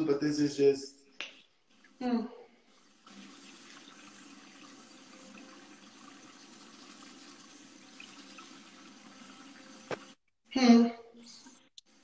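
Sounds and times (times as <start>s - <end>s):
running water hiss: 2.7s - 10.2s.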